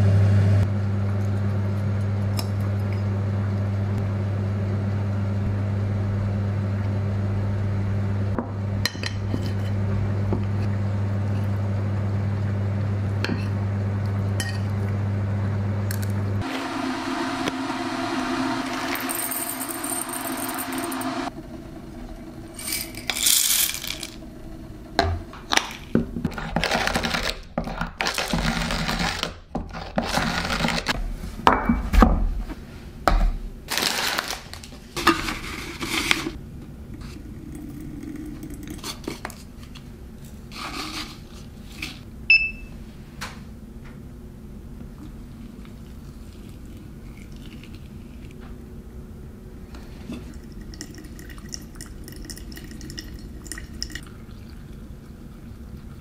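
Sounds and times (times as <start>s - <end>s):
coffee beans poured into cup: 18.8s - 21.1s, 22.6s - 24.2s
short electronic beep: 42.3s - 42.7s.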